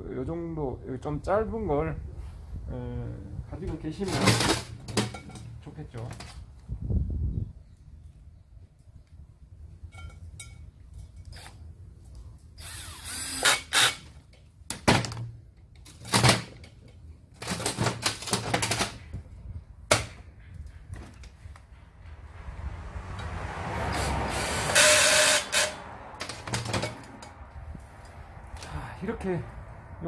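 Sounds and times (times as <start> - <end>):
cordless drill running: 12.6 - 14.0.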